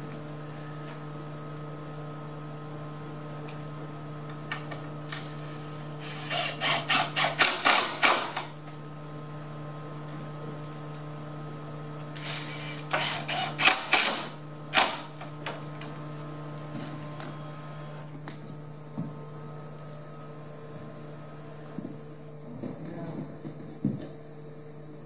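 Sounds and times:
steady low hum: 0:00.0 - 0:25.0
screw gun driving screws into wood: 0:06.0 - 0:08.5, 0:12.2 - 0:15.1.

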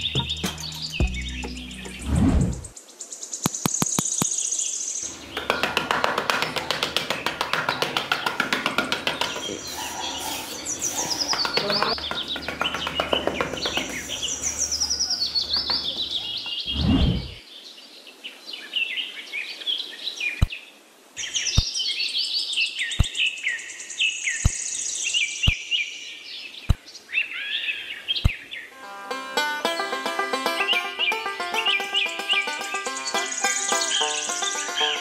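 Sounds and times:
music: 0:00.0 - 0:02.0, 0:05.1 - 0:09.3, 0:28.8 - 0:35.0
small birds chirping: 0:00.0 - 0:17.9, 0:19.6 - 0:28.8, 0:29.7 - 0:35.0
low whoosh: 0:01.8 - 0:02.7, 0:16.6 - 0:17.4.

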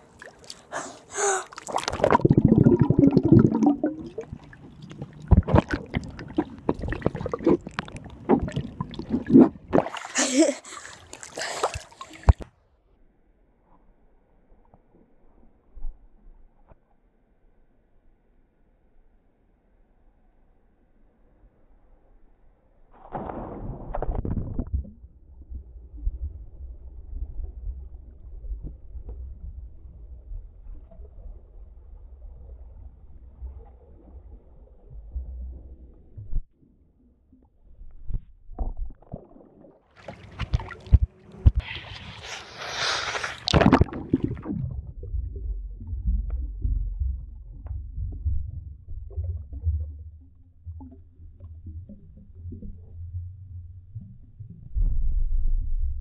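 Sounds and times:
water splashing: 0:00.0 - 0:12.5, 0:39.0 - 0:52.6
muffled underwater bubbling: 0:00.1 - 0:12.4, 0:43.4 - 0:54.4
person splashing into pool: 0:05.4 - 0:12.4, 0:41.6 - 0:44.8
muffled underwater rumble: 0:24.0 - 0:39.0, 0:43.6 - 0:56.0.

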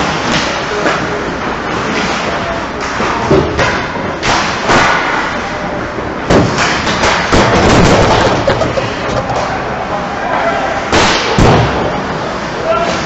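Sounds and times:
hockey sticks clattering: 0:06.5 - 0:09.7
loud thumps: 0:07.3 - 0:09.5.

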